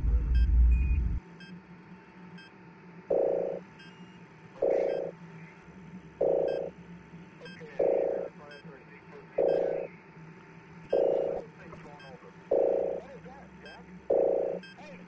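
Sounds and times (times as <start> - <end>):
low electronic beep: 0.0 - 1.2, 6.2 - 6.7, 9.4 - 9.9, 10.9 - 11.4, 12.0 - 13.0, 13.7 - 14.8
low rumble: 0.0 - 1.2
faint regular ticking: 6.2 - 6.7, 9.4 - 9.9, 10.9 - 11.4, 12.5 - 13.0.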